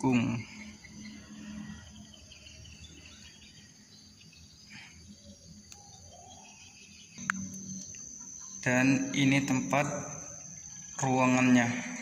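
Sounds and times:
faint bird chirps: 0.0 - 12.0
high insect drone: 0.0 - 12.0
sharp click: 7.2 - 8.0.

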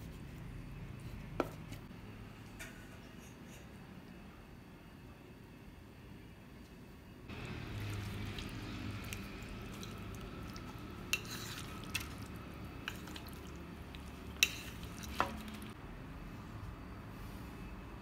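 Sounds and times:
fish squelching in marinade: 7.3 - 15.8.

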